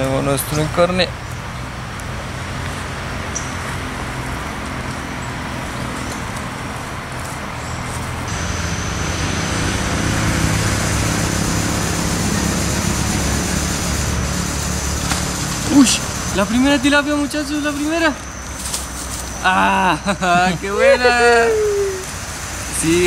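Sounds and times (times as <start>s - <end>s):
road noise: 0.0s - 23.0s
vehicle engine rumble: 0.0s - 23.0s
thin high steady tone: 8.3s - 23.0s.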